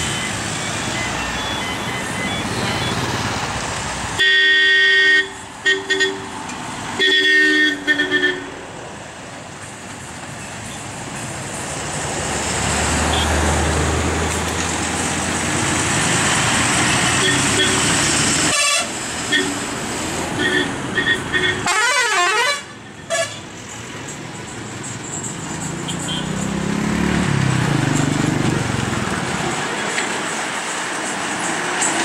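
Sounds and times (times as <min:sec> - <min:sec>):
lorry diesel engines running: 0:00.0 - 0:32.0
truck horn blasts and toots: 0:04.2 - 0:06.4, 0:07.0 - 0:08.6, 0:17.1 - 0:19.7, 0:20.4 - 0:23.5.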